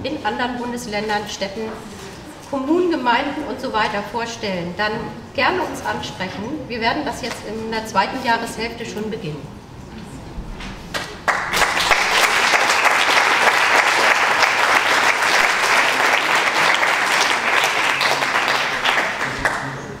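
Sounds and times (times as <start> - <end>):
audience applauding: 10.9 - 20.0.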